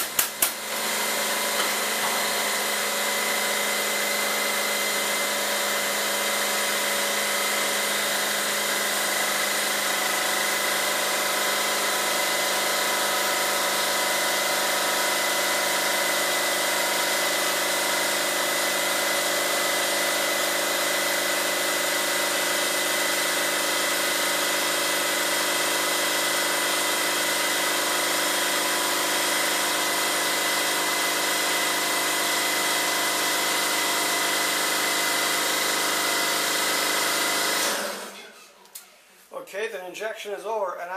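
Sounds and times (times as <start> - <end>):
injection molding machine humming: 0.0 - 3.8.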